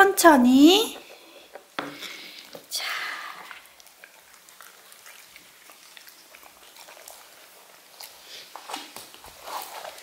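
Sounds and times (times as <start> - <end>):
dog licking food: 3.4 - 10.0.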